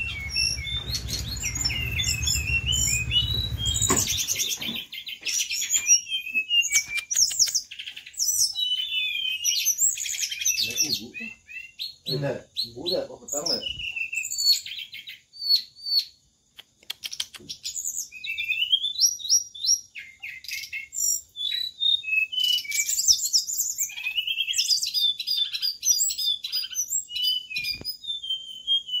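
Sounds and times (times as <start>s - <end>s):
songbirds chirping and singing: 0.0s - 16.3s, 17.0s - 29.0s.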